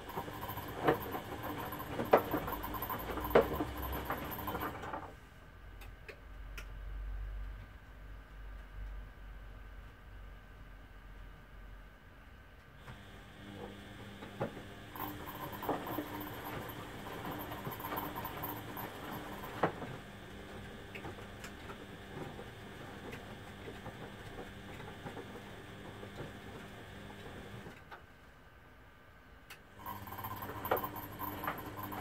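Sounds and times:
motor hum: 0:00.0 - 0:05.0, 0:12.8 - 0:27.8, 0:29.8 - 0:32.0
washing machine drums turning laundry: 0:00.0 - 0:05.1, 0:12.9 - 0:27.7, 0:29.8 - 0:32.0.

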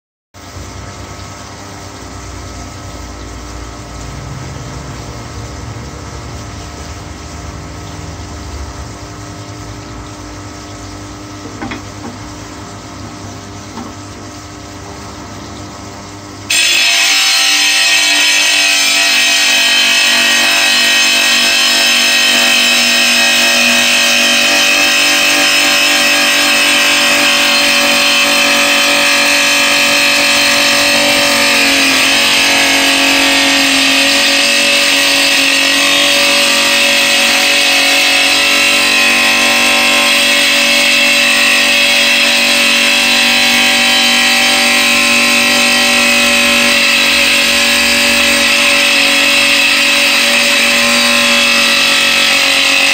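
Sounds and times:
tile saw whining: 0:16.5 - 0:52.9.

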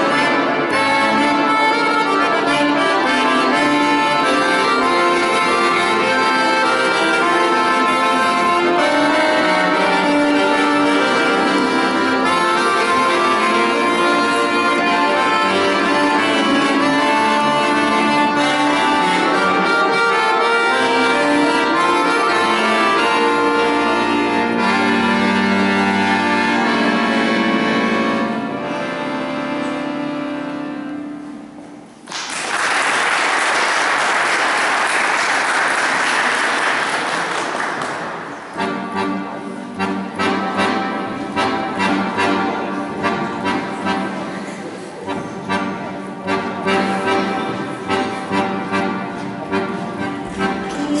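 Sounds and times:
piano accordion playing: 0:00.0 - 0:32.0, 0:32.9 - 0:51.0
applause: 0:32.0 - 0:38.4.

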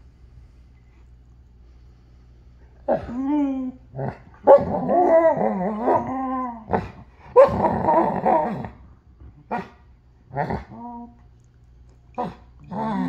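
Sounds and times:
dog whining and grumbling: 0:02.8 - 0:11.2, 0:12.1 - 0:13.0.

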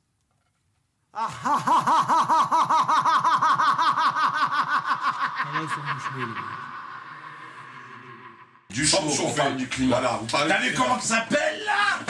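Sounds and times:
person cackling laughter: 0:01.2 - 0:08.6.

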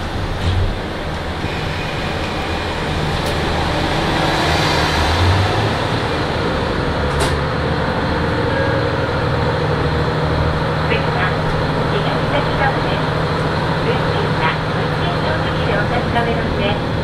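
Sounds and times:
diesel railcar engine running: 0:00.0 - 0:17.0.

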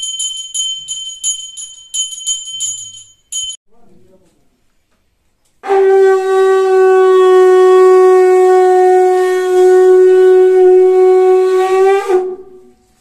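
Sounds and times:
conch shell blown: 0:05.6 - 0:13.0.

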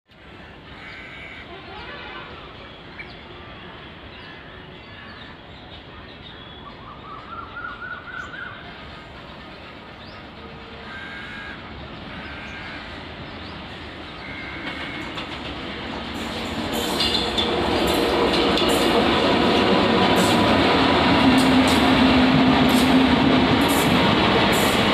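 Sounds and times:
approaching train rumble: 0:00.1 - 0:24.9
outdoor background noise: 0:00.1 - 0:24.9
birds chirping: 0:00.8 - 0:24.9.

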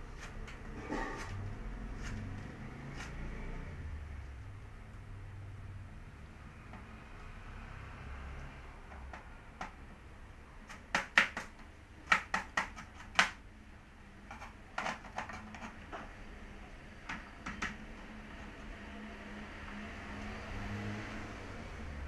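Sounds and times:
knife chopping on plastic board: 0:10.6 - 0:13.4.

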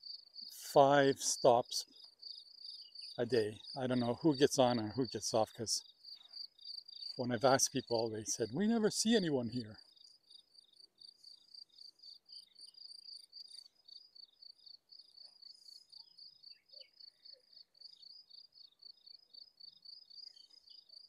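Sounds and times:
faint cricket chirping: 0:00.0 - 0:21.0.

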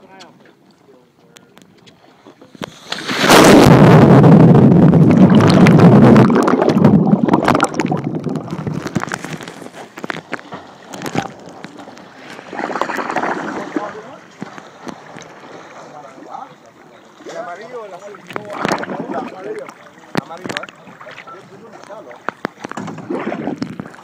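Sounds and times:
water sloshing: 0:01.5 - 0:24.0
splash into water: 0:02.6 - 0:09.7, 0:12.3 - 0:15.8, 0:22.6 - 0:24.0
bubbling churning water: 0:02.6 - 0:24.0.

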